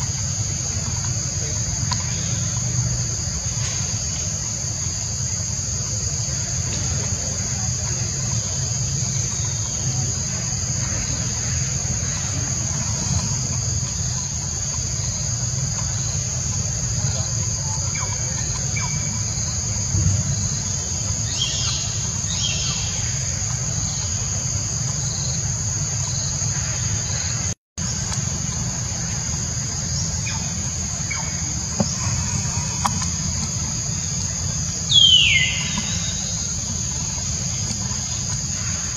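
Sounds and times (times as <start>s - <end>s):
insects buzzing: 0.0s - 38.9s
bird chirps: 34.9s - 36.5s.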